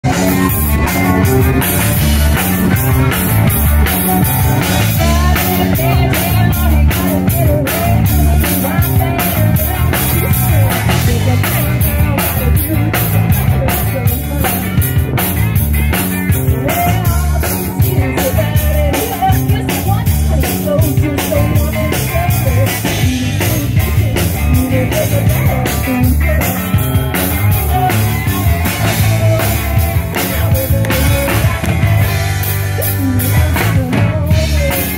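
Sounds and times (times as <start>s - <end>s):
live rock band playing: 0.0s - 34.9s.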